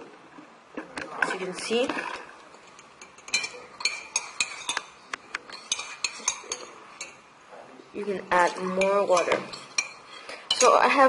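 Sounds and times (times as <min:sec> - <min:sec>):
spoon clinking in ceramic mug: 0:03.0 - 0:04.9, 0:05.5 - 0:07.2, 0:08.8 - 0:10.8.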